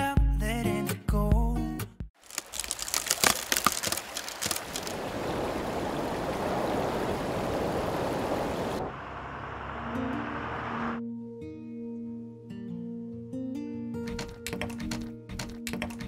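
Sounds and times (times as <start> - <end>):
cartoon crackling and breaking: 2.2 - 5.0
rushing water: 2.2 - 11.0.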